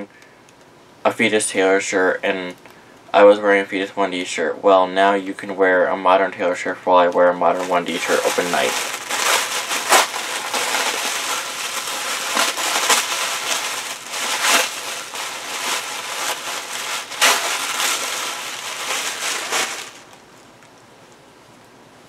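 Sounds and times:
tissue paper crinkling: 7.4s - 20.2s.

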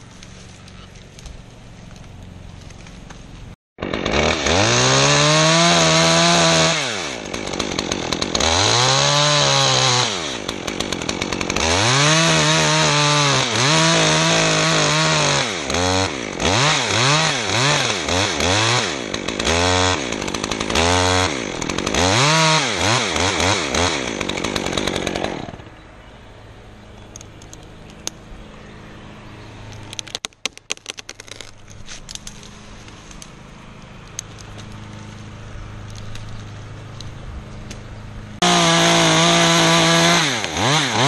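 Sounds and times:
chainsaw revving: 3.8s - 25.8s, 38.4s - 41.0s.

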